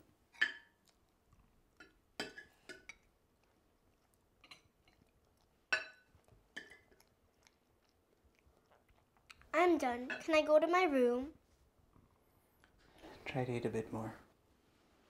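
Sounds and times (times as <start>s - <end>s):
cutlery clinking on ceramic: 0.3s - 0.8s, 1.8s - 3.1s, 5.7s - 7.0s.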